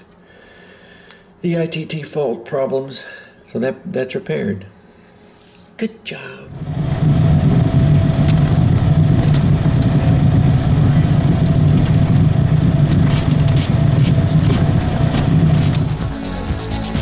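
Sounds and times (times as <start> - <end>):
jet turbine engines running: 6.4 - 16.7
high thin whine: 6.4 - 16.8.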